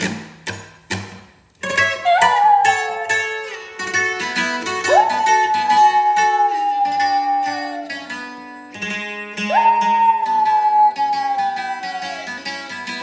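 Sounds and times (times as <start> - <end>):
acoustic guitar strumming: 0.0 - 13.0
small dog howling: 2.0 - 3.2, 4.9 - 8.3, 9.4 - 12.4.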